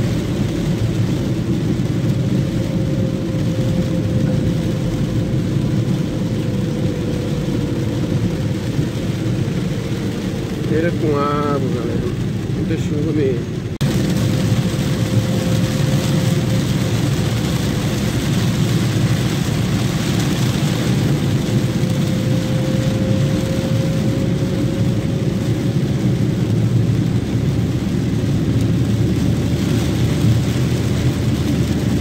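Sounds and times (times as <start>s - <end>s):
car engine: 0.0s - 32.0s
rain on car body: 0.0s - 32.0s
tyres on wet asphalt: 0.0s - 32.0s.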